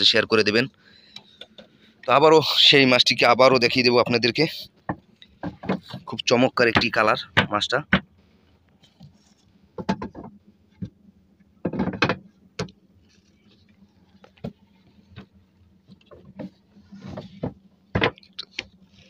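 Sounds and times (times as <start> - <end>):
fish knocking on wooden planks: 4.9 - 6.1, 9.8 - 11.0, 11.6 - 12.8, 15.9 - 18.8.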